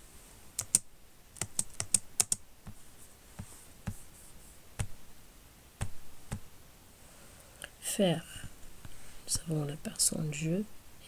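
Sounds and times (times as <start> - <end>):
keyboard typing: 0.6 - 2.4.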